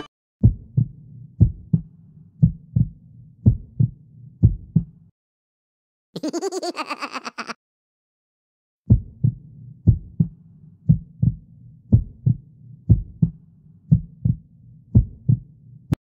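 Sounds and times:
heartbeat thumps: 0:00.4 - 0:05.0, 0:08.9 - 0:15.5.

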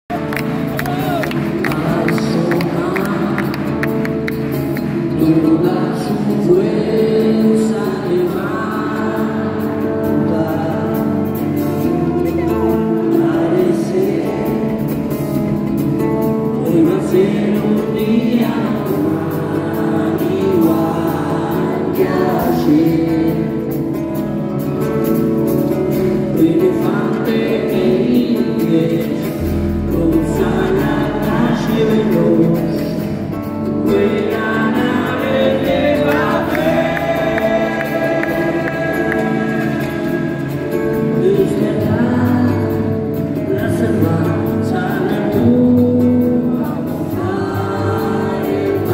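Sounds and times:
person singing: 0:00.1 - 0:25.0, 0:25.8 - 0:48.9
rock band playing live: 0:00.1 - 0:48.9
heavy bass: 0:29.3 - 0:48.9.

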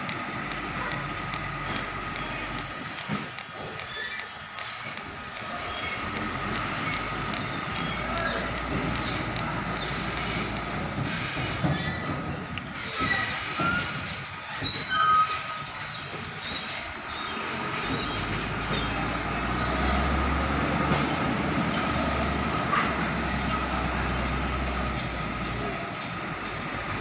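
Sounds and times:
truck diesel engine rumble: 0:00.0 - 0:27.0
high metallic squeals: 0:03.5 - 0:06.1, 0:09.8 - 0:19.3.

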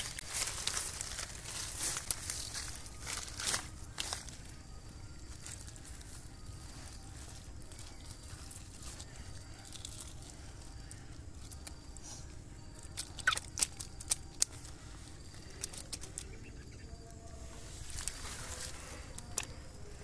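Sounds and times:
wet squelching in mud: 0:12.8 - 0:14.6.

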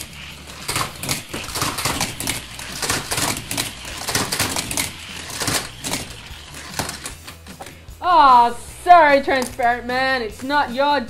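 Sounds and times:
toy cars clattering on plastic track: 0:00.0 - 0:07.7.

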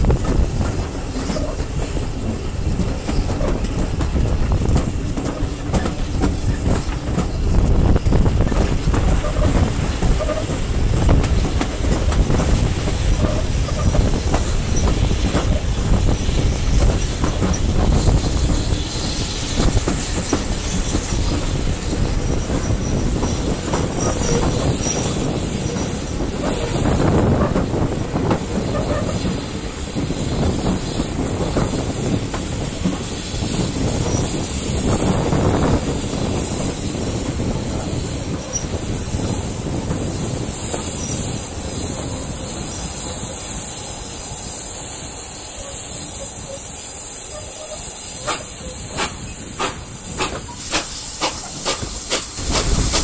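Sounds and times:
clicks over rail joints: 0:00.0 - 0:12.6, 0:48.2 - 0:53.0
train wheels rumbling on rails: 0:00.0 - 0:53.0
wind noise: 0:00.0 - 0:53.0.

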